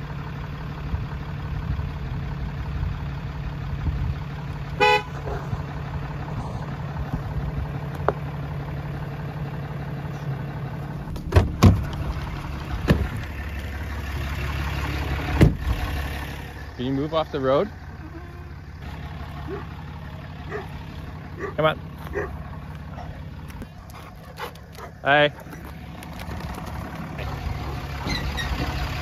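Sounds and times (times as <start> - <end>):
pickup truck idling: 0.0 - 29.0
truck horn toot: 4.7 - 5.4
truck door opening knocks: 11.1 - 12.0, 15.4 - 15.7.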